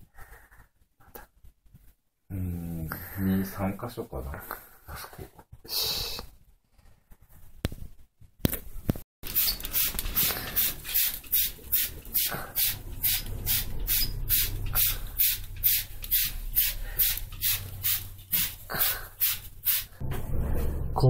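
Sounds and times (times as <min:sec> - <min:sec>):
spray bottle squirting: 0:09.2 - 0:20.0.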